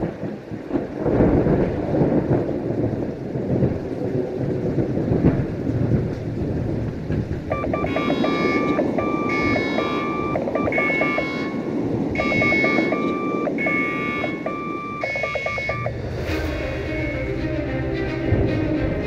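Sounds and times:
heavy sea: 0.0 - 19.0
wind: 0.0 - 19.0
electronic telephone ringing: 7.5 - 16.0.

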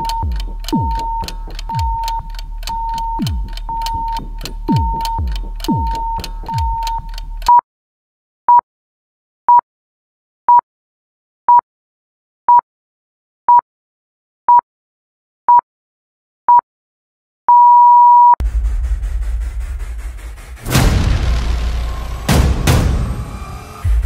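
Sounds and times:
long electronic beep: 0.0 - 7.2
short electronic beeps: 0.0 - 7.6, 17.5 - 18.4
loud noisy rumbling: 18.4 - 24.0.

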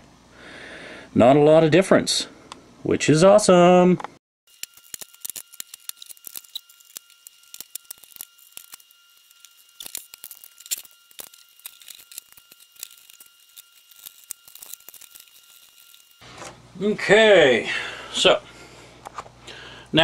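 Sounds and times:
hands handling computer parts: 4.5 - 16.6.

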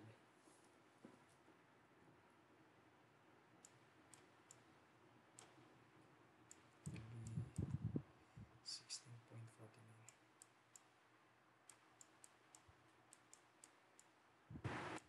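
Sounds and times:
faint input clicks: 3.6 - 5.7.

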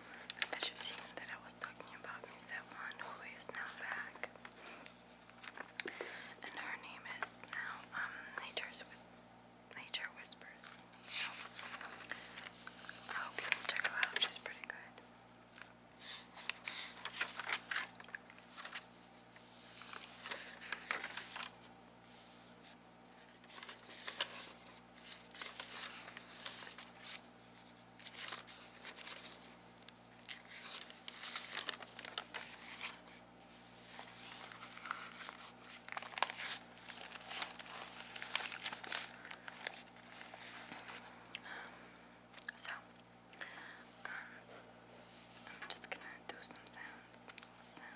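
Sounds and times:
notepad pages flipping: 5.2 - 5.8, 10.6 - 14.8, 15.5 - 41.1.

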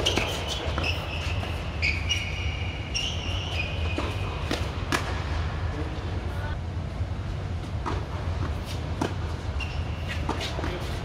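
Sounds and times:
tennis ball hits and bounces: 0.0 - 1.6, 3.6 - 5.4, 7.8 - 9.4
sneakers squeaking on court: 0.0 - 5.2, 9.0 - 11.0
steady low hum: 0.0 - 11.0.

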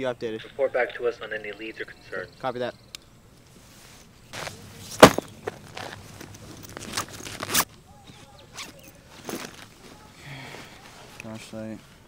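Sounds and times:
rustling and scraping of bag: 3.5 - 12.0
backpack thud: 4.4 - 6.0.

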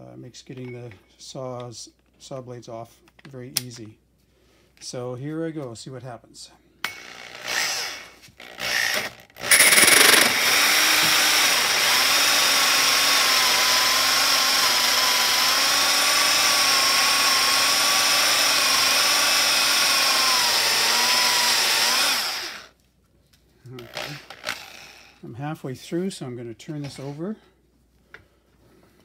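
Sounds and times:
drill hole saw cutting wood: 6.9 - 22.8, 23.8 - 25.2.

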